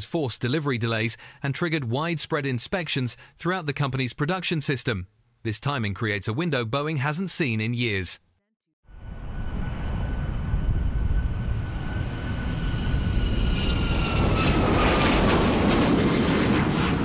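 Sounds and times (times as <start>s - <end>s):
jet airliner taking off: 8.9s - 17.0s.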